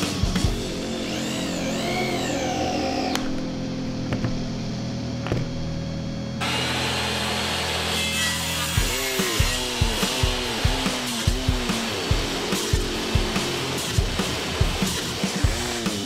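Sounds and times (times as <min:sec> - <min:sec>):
table saw cutting plywood: 0:00.0 - 0:04.5, 0:06.4 - 0:16.0
cordless drill driving screws: 0:01.0 - 0:03.3.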